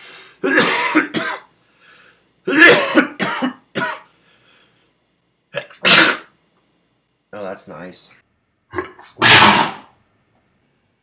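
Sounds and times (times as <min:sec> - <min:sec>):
man clearing his throat: 0:00.4 - 0:01.5, 0:02.5 - 0:04.1
man sneezing: 0:02.5 - 0:04.0, 0:05.8 - 0:06.3, 0:09.1 - 0:09.9.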